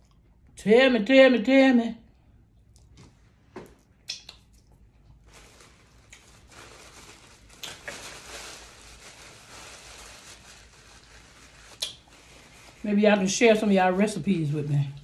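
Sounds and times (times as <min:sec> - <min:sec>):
crisp material crinkling by hand: 0:05.0 - 0:15.0.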